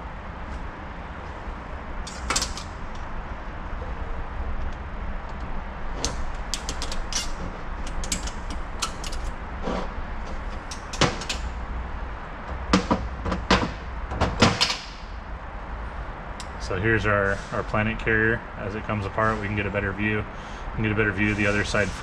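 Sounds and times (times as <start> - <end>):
steady low hum: 0.0 - 22.0
small metal parts clicking: 6.0 - 9.3
metal clanks: 6.0 - 9.4.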